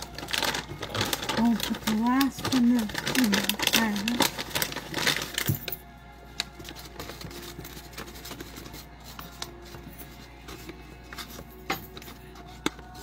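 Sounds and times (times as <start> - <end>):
plastic pouch crinkling: 0.0 - 5.7.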